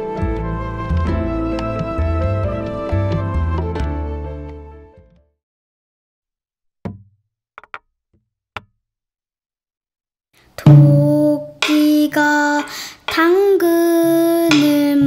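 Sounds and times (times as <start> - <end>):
sharp knocks: 6.8 - 7.8, 14.5 - 14.9
child singing long held notes: 10.6 - 15.0.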